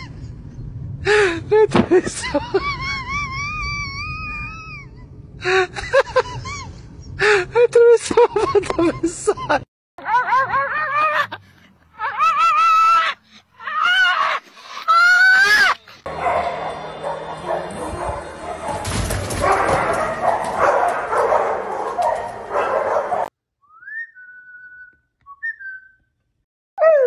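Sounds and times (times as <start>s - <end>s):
small dog barking: 19.4s - 23.3s.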